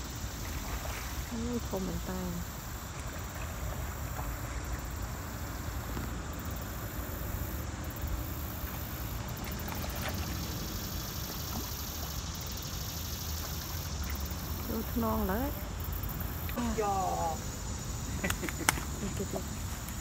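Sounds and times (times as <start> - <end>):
fish splashing in water: 8.2 - 15.0.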